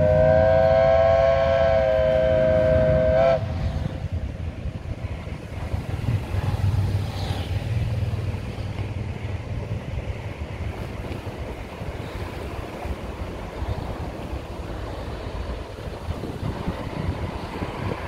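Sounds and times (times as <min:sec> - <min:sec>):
ship's whistle blast: 0:00.0 - 0:03.5
lake water: 0:00.0 - 0:18.0
wind: 0:00.0 - 0:18.0.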